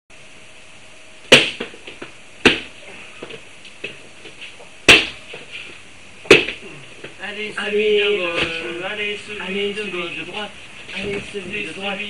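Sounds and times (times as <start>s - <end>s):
slaps to the face: 1.3s - 1.7s, 4.9s - 5.2s.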